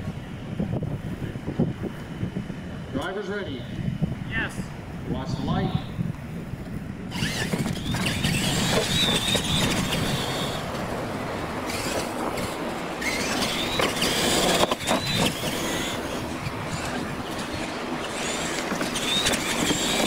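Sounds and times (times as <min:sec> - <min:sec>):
tyres on dirt and wind noise: 0:00.0 - 0:20.0
electric motors whining: 0:04.7 - 0:20.0.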